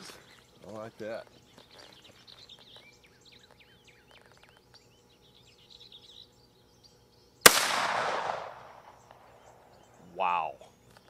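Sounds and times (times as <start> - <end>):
birds chirping: 0.0 - 11.0
rifle shot: 7.4 - 9.0.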